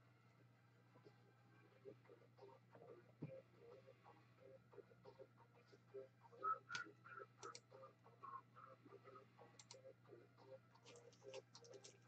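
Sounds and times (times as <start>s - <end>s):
low steady hum: 0.0s - 12.0s
keyboard and mouse clicking: 7.4s - 7.7s, 9.6s - 9.8s.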